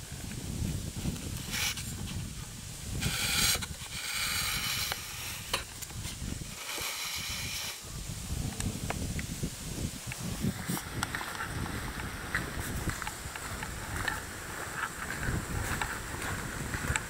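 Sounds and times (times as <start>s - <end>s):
wind rumble on microphone: 0.0s - 17.0s
footsteps on gravel and leaves: 9.0s - 17.0s.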